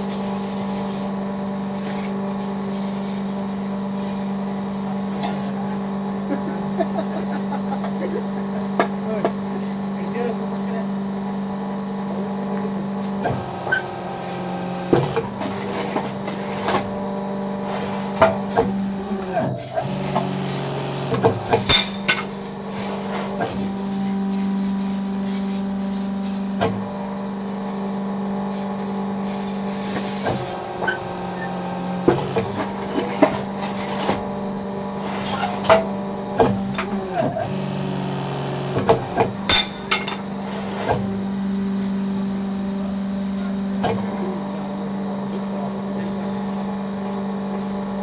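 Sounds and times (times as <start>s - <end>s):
electric motor humming: 13.3s - 23.9s, 29.8s - 35.3s, 36.5s - 41.4s
machine metal clanks: 39.4s - 40.3s.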